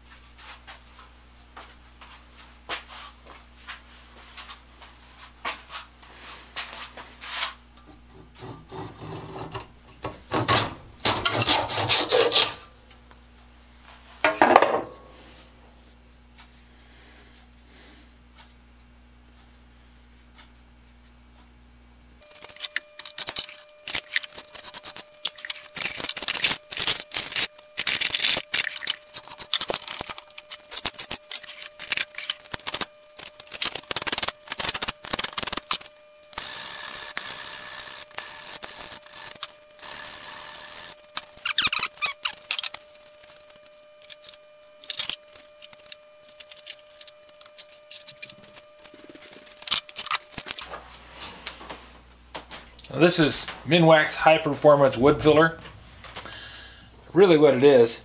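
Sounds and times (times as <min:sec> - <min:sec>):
file scraping wood: 0:07.4 - 0:12.6
hand saw cutting wood: 0:08.4 - 0:12.6.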